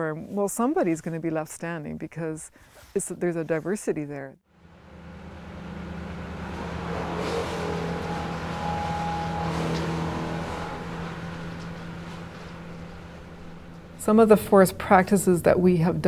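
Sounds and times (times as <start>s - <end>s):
low drone: 4.6s - 14.5s
held higher tones: 4.6s - 14.6s.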